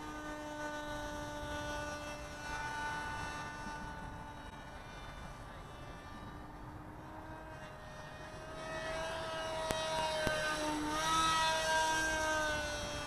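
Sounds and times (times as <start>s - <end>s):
model plane propeller whine: 0.0s - 13.0s.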